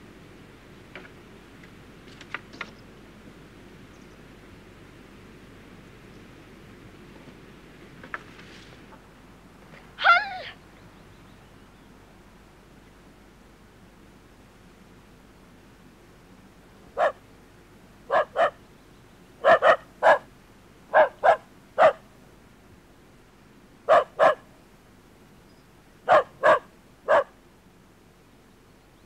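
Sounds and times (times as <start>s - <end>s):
dog barking: 17.0s - 17.2s, 18.1s - 18.6s, 19.4s - 20.3s, 20.9s - 22.0s, 23.9s - 24.5s, 26.1s - 27.4s.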